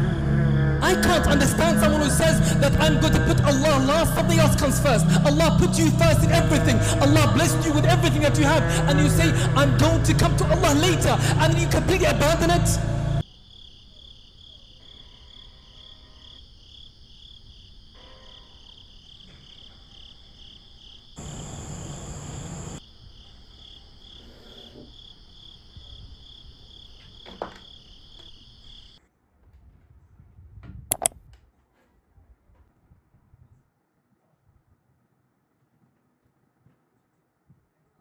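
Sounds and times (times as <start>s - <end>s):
crickets chirping: 13.2s - 29.0s
sharp clicks: 30.9s - 31.2s.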